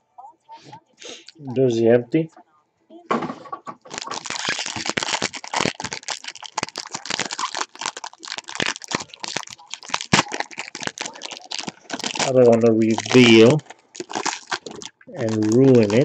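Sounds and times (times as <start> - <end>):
foil wrapper crinkling: 3.8 - 16.0.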